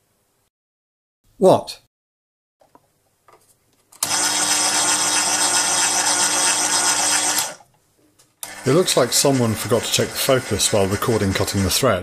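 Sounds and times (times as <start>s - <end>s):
lathe motor whirring: 4.0s - 7.6s, 8.4s - 11.8s.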